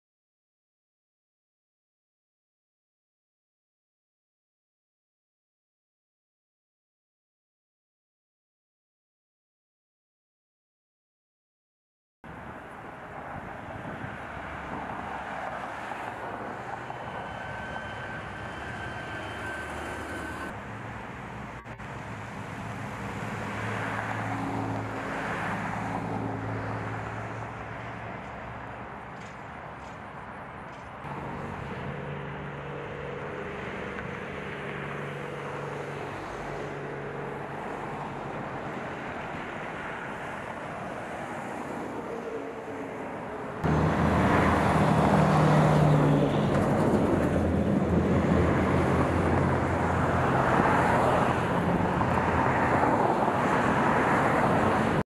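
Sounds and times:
road traffic passing: 12.3s - 55.0s.

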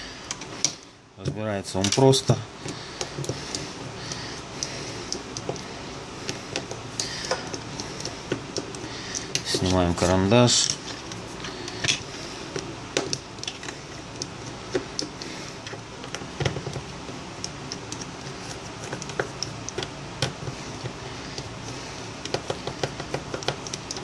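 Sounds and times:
faint room hum: 0.0s - 24.0s
hands tapping plastic phone: 18.8s - 21.5s, 22.2s - 24.0s.

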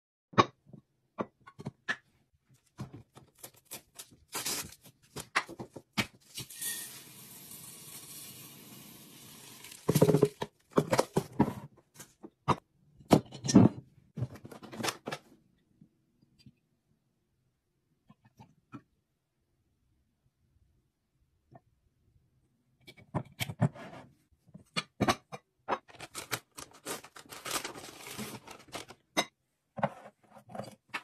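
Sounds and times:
beads pouring into glass: 6.4s - 10.3s
bottle and jug set down: 9.8s - 11.0s.

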